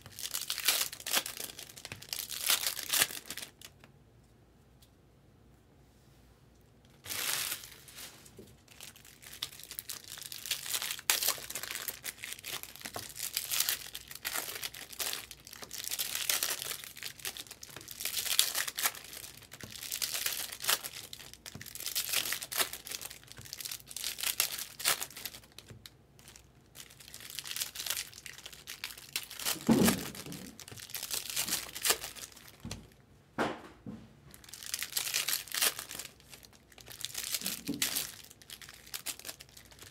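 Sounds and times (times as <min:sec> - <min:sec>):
foil wrappers tearing and crinkling: 0:00.0 - 0:03.8, 0:07.0 - 0:08.1, 0:08.7 - 0:32.6, 0:34.4 - 0:39.9
dull thump: 0:33.4 - 0:34.2.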